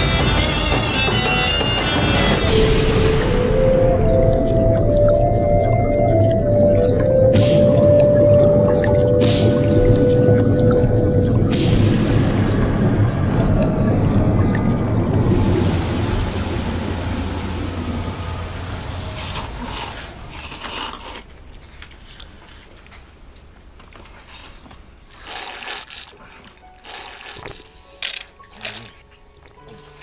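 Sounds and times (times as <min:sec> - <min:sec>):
low rumbling: 0:01.9 - 0:21.6
slurping noodles: 0:19.3 - 0:21.4, 0:24.1 - 0:27.8.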